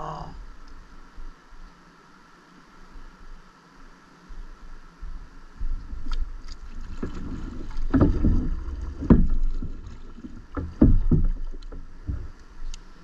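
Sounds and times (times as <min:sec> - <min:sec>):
thumps on a boat hull: 0:06.9 - 0:12.4.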